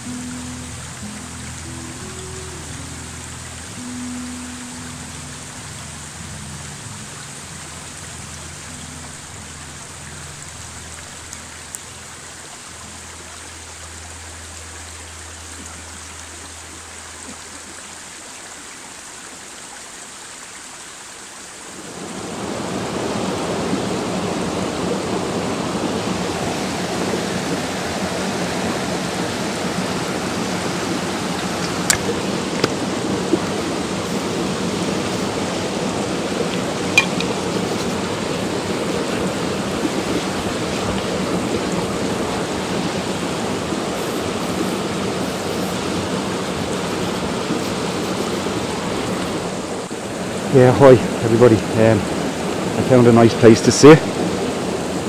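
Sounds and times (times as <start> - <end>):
soft background music: 0.0 - 18.4
stream rushing over boulders: 0.0 - 55.0.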